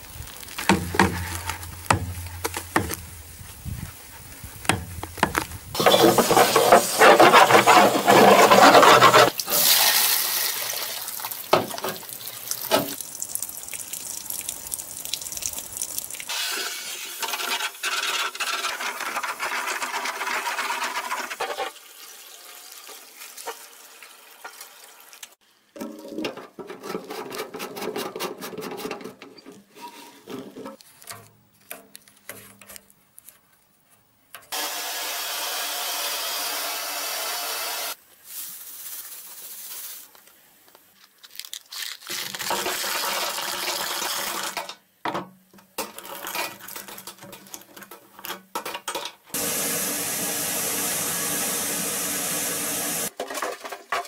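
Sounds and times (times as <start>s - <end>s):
gravel rattling in metal tank: 4.7s - 9.6s.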